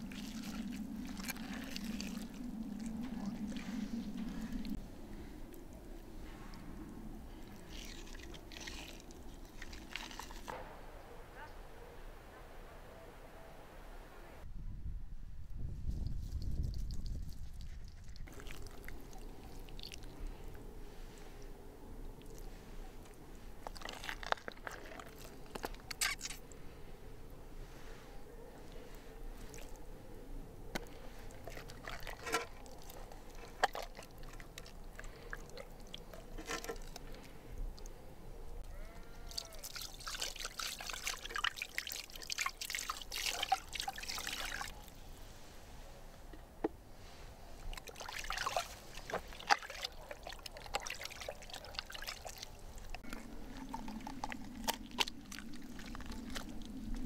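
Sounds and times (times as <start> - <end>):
water pouring and trickling: 0.0 - 4.8, 6.2 - 10.6, 15.9 - 21.4, 22.1 - 26.5, 30.8 - 37.9, 39.3 - 44.9, 47.6 - 57.0.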